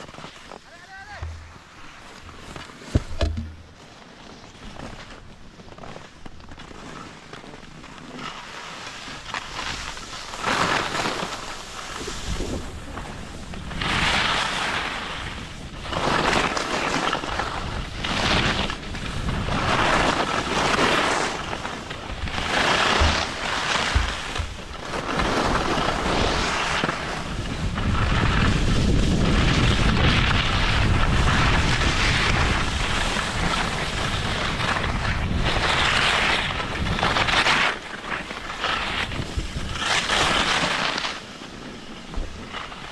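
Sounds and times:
skis scraping on icy snow: 0.0s - 42.9s
wind rumbling on microphone: 11.1s - 41.0s.

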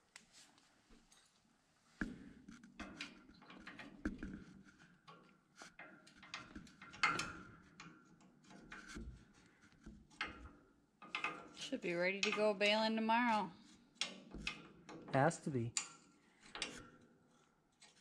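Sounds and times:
metal tool scraping steel frame: 8.4s - 10.5s, 16.4s - 18.0s.

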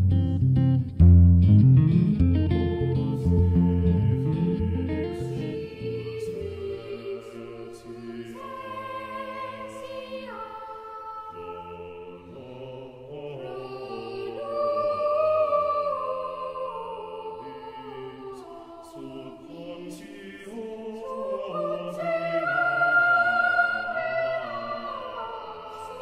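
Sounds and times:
plucked guitar with bass: 0.0s - 5.8s
held choral chords: 2.2s - 26.0s.

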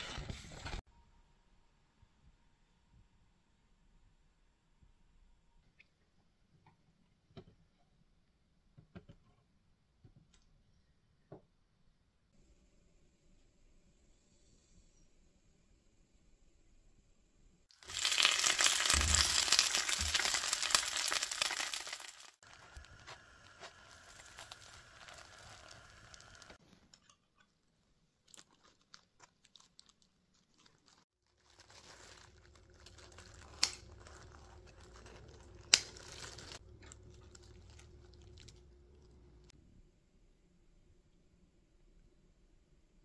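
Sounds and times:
plastic glove crinkling: 17.8s - 26.6s, 28.2s - 39.5s.

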